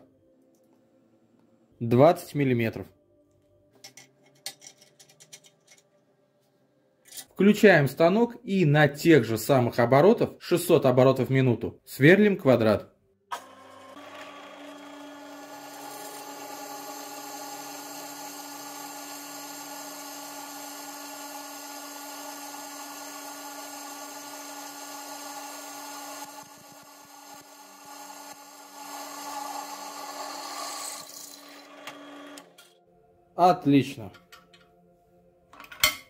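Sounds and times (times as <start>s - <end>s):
drill press motor hum: 13.3s - 32.5s
drill scraping through metal: 13.4s - 32.5s.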